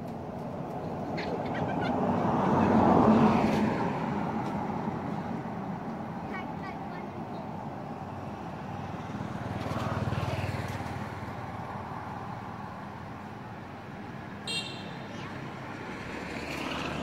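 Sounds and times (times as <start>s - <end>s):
road traffic rumble: 0.0s - 17.0s
vehicle passing: 1.5s - 6.2s, 14.5s - 17.0s.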